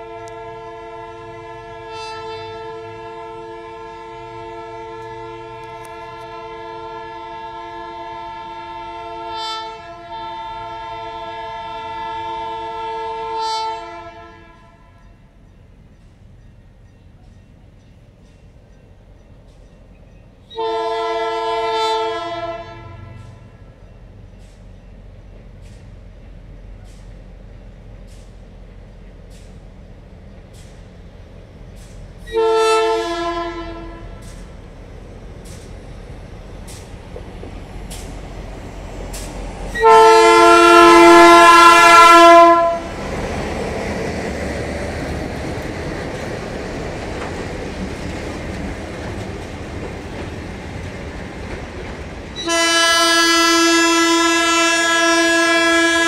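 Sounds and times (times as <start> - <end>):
locomotive air horn blasts: 0.0 - 15.2, 20.5 - 23.8, 32.2 - 34.5, 39.2 - 43.1, 52.4 - 56.0
locomotive engine rumbling: 0.0 - 56.0.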